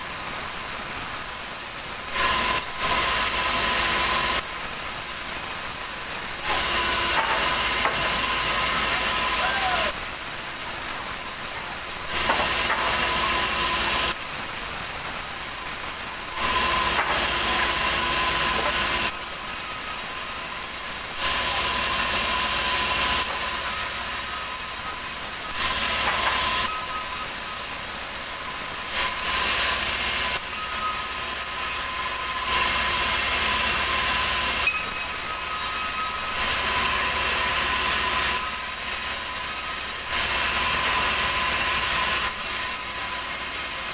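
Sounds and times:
band saw cutting planks: 0:02.1 - 0:04.5, 0:06.4 - 0:10.0, 0:12.0 - 0:14.2, 0:16.2 - 0:20.3, 0:21.0 - 0:27.2, 0:28.6 - 0:43.9.

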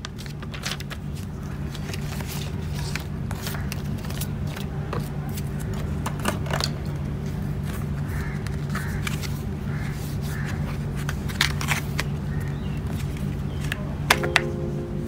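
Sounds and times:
steady low hum: 0:12.2 - 0:15.0.

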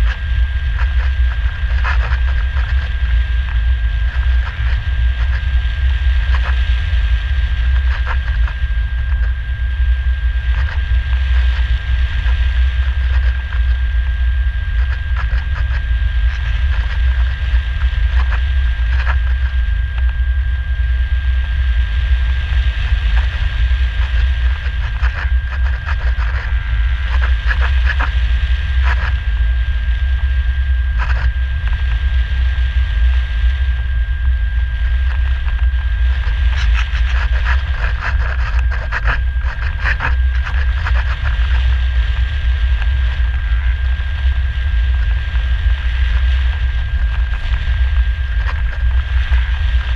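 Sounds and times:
thin high whine: 0:00.0 - 0:49.9
wind rushing over camera: 0:00.0 - 0:49.9.

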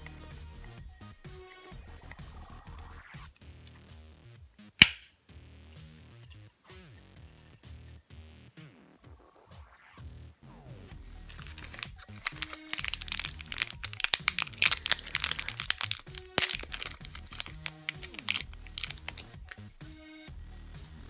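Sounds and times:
plastic bag crinkling: 0:11.2 - 0:19.7.

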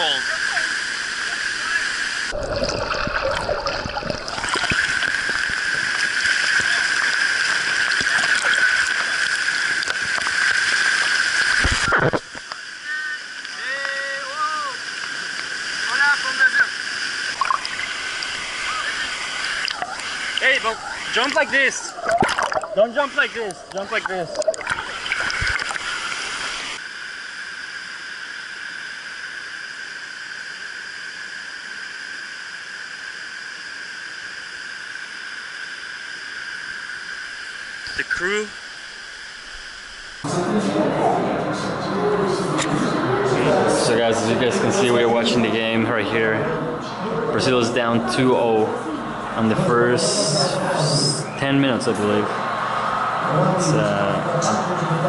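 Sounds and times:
waterfalls pouring into pool: 0:00.0 - 0:26.8
waterfall rushing and splashing: 0:01.4 - 0:11.9
water splashing close by: 0:01.7 - 0:12.3, 0:17.2 - 0:26.8.

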